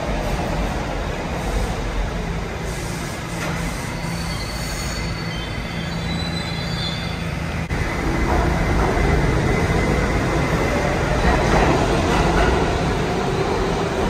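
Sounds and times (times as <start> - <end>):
subway train rumbling: 0.0 - 14.0
high wheel squeal: 3.4 - 7.4.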